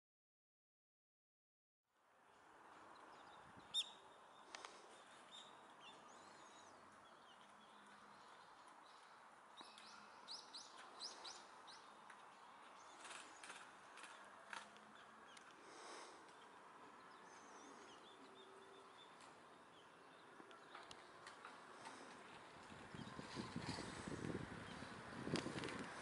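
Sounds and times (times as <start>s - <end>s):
faint outdoor background hum: 1.9s - 26.0s
bird chirping: 2.9s - 15.5s.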